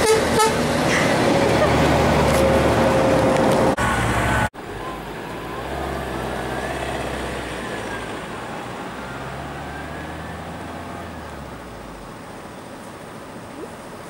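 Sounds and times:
loud truck sound: 0:00.0 - 0:12.1
diesel truck engine droning: 0:00.0 - 0:12.2.

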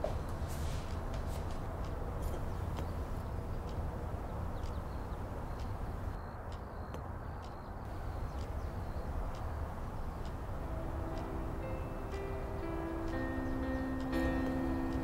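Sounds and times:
steady low drone: 0:07.9 - 0:15.0.

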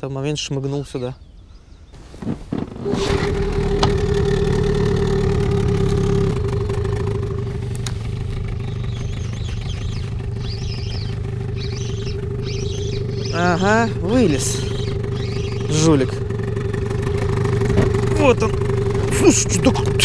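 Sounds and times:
outboard motor running: 0:02.0 - 0:20.0.

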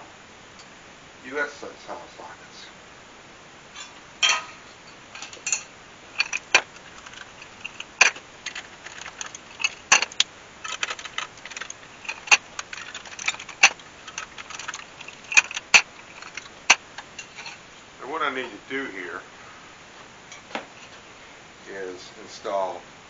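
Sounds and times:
metallic clinks and rattles: 0:03.8 - 0:17.6.

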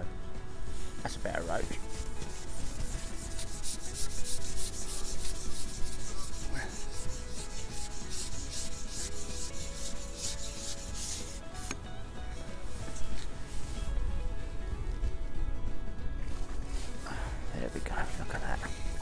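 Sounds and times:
clothing rubbing and scraping: 0:00.6 - 0:11.6, 0:12.5 - 0:14.1, 0:16.2 - 0:19.0.

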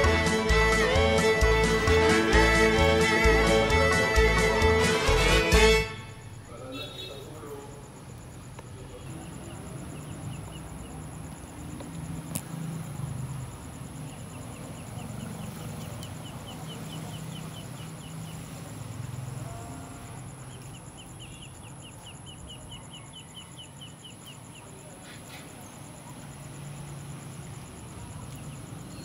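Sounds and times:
bird chirping: 0:06.1 - 0:12.7, 0:13.8 - 0:26.4, 0:28.2 - 0:29.0.

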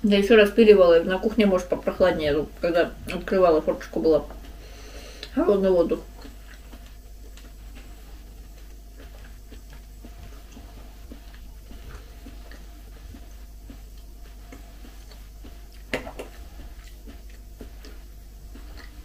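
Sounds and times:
quiet chewing: 0:04.2 - 0:19.0.

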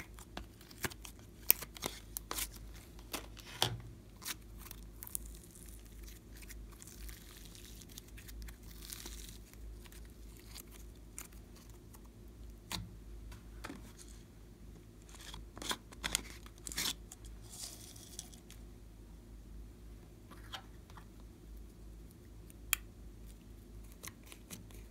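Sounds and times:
slime squishing and crackling: 0:00.0 - 0:12.8
low steady hum: 0:00.0 - 0:24.9.

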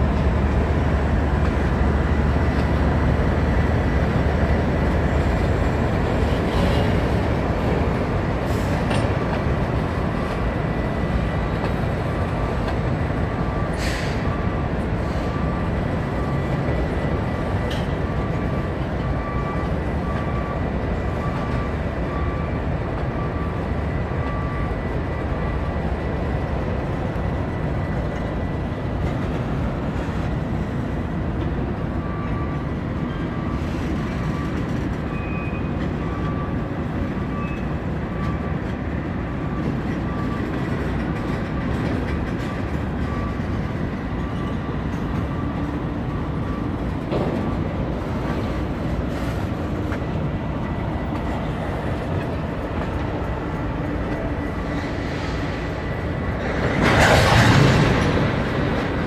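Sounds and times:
freight train rumble: 0:00.0 - 0:59.0.

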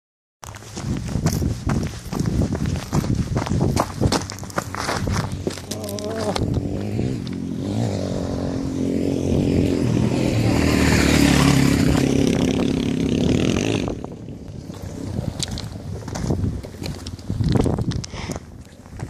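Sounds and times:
shoes scraping on loose rocks: 0:00.4 - 0:07.0, 0:15.4 - 0:18.0
motorcycle engine running: 0:01.2 - 0:16.5.

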